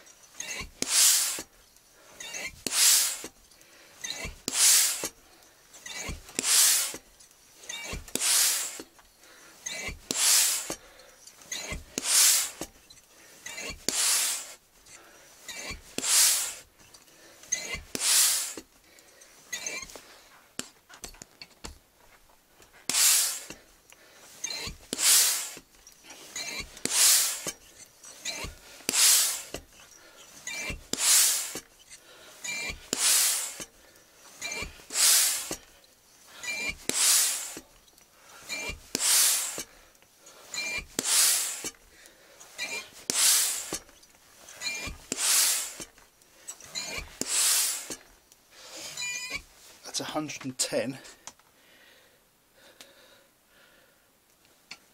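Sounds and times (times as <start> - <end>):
hand pump air rush: 0.0 - 21.8, 22.7 - 49.8
pump return stroke: 0.4 - 1.5, 2.1 - 3.4, 4.0 - 5.2, 5.8 - 8.9, 9.6 - 12.8, 13.4 - 18.7, 22.8 - 50.1.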